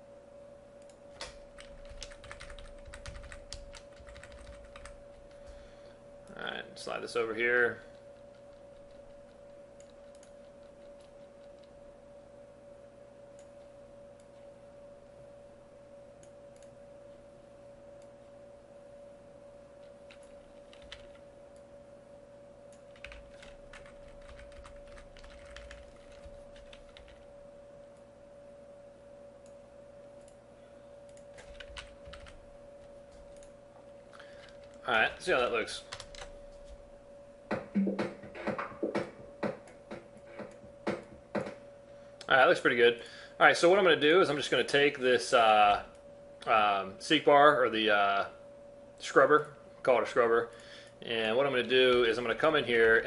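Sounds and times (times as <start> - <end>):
faint steady hum: 0.0 - 53.0
keyboard keys clicking: 1.2 - 5.0, 20.1 - 21.2, 22.8 - 27.2, 31.1 - 32.4.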